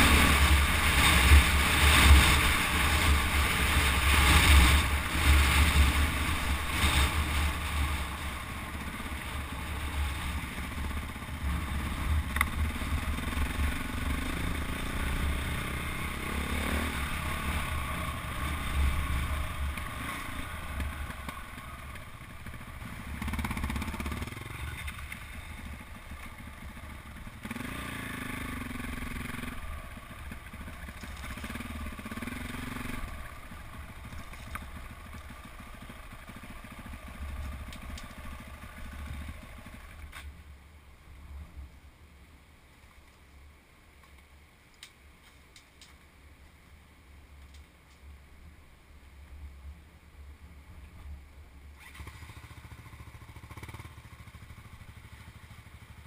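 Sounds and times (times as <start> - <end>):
motorbike engine revving: 10.9 - 21.8, 22.4 - 25.2, 27.3 - 29.6, 51.8 - 55.2.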